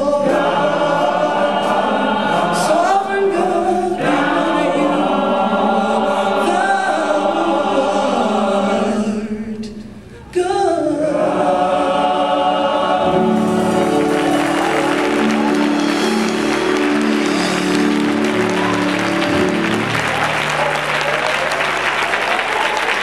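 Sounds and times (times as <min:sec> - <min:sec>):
instruments holding sustained chord: 0:12.8 - 0:22.5
people applauding and cheering: 0:13.2 - 0:23.0.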